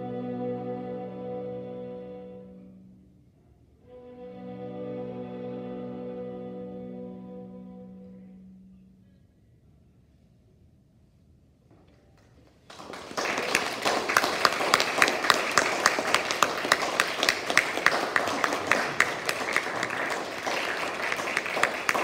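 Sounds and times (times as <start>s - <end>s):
small audience applauding: 12.4s - 22.0s.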